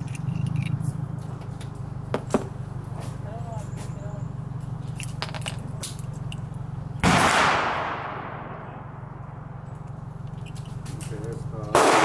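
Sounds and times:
gunshot with echo: 7.0s - 8.8s, 11.8s - 12.0s.

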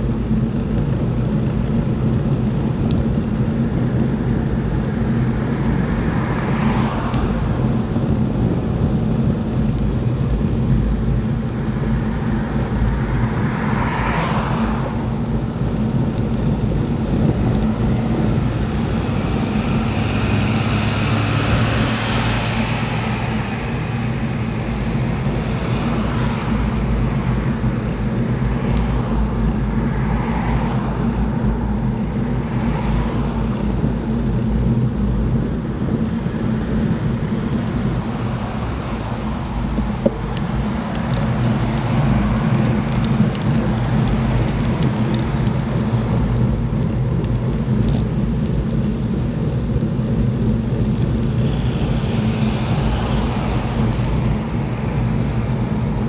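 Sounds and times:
wind rumbling on microphone: 0.0s - 56.0s
vehicles swishing past: 5.5s - 8.6s, 12.2s - 34.9s, 36.0s - 47.2s, 50.1s - 56.0s.

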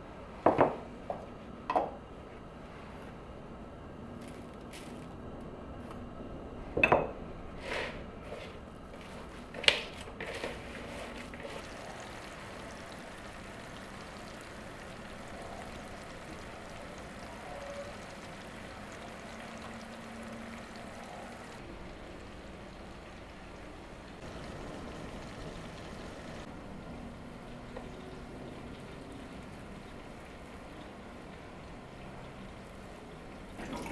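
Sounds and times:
onions sizzling in frying pan: 10.9s - 23.6s, 24.2s - 26.5s.

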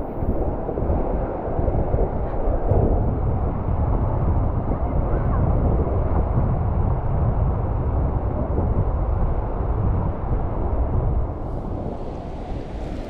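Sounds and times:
wind rumbling on microphone: 0.0s - 13.0s
waves breaking on rocks: 11.4s - 13.0s.

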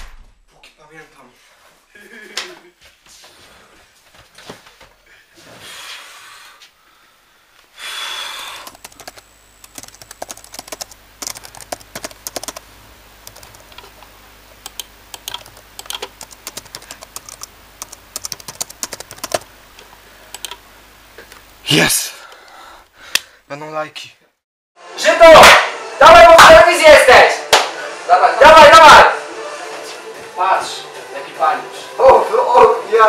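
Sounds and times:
keyboard keystroke clicks: 14.6s - 19.4s, 20.4s - 20.6s.

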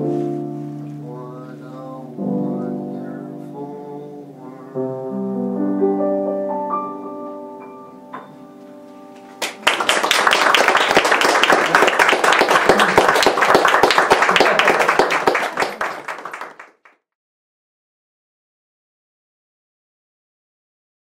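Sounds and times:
audience applause: 9.4s - 17.0s.

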